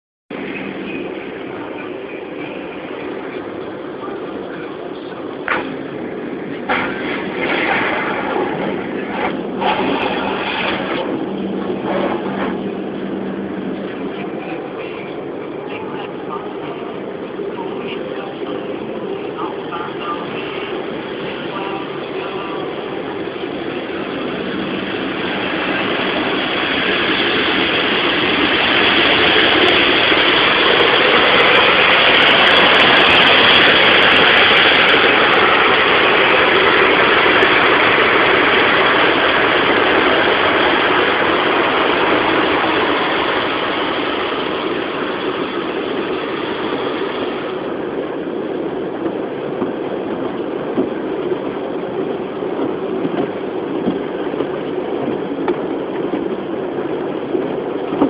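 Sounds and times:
water jets spraying on car: 0:06.7 - 0:12.7.

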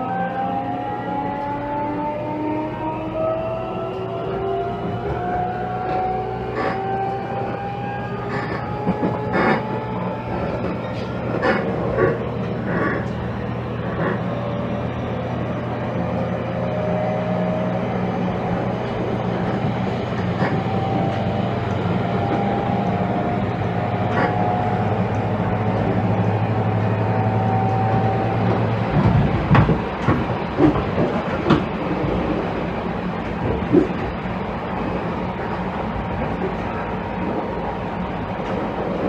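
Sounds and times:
electric train motors humming: 0:00.0 - 0:39.0
wheels clacking over rail joints: 0:08.3 - 0:14.3, 0:18.4 - 0:37.4.

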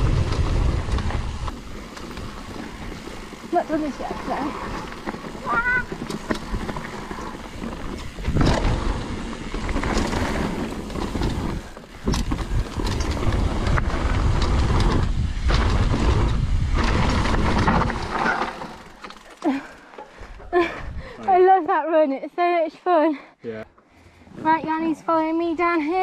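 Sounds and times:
wind rumbling on microphone: 0:00.0 - 0:18.7, 0:20.3 - 0:21.2
bike frame rattling and knocking: 0:00.0 - 0:20.7
tyres on dirt: 0:00.0 - 0:22.6.

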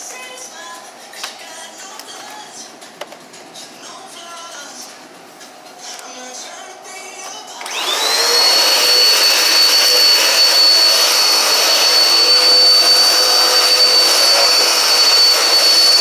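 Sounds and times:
vacuum cleaner motor whining: 0:07.6 - 0:16.0
vacuum sucking up grit: 0:07.6 - 0:16.0.

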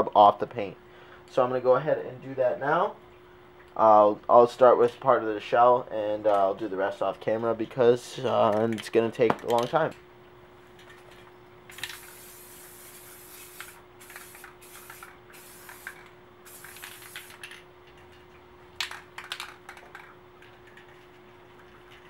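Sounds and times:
aerosol can spraying: 0:11.7 - 0:17.6.

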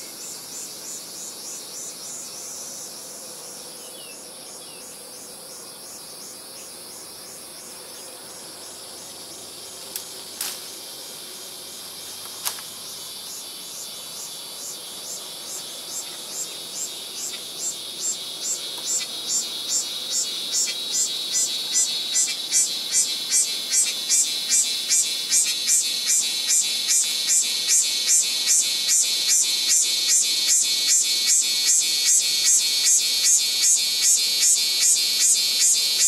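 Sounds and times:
constant high hiss: 0:00.0 - 0:36.0
insects chirping rhythmically: 0:00.0 - 0:36.0.

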